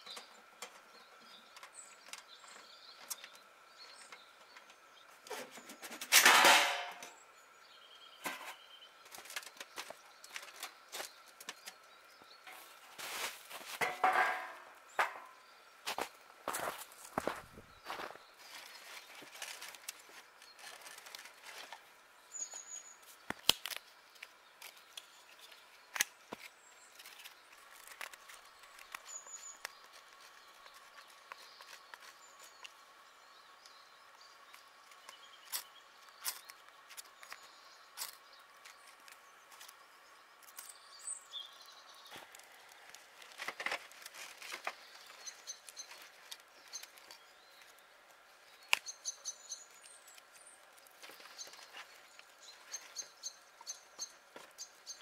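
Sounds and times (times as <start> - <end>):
firewood knocking into stove: 13.8 - 15.3.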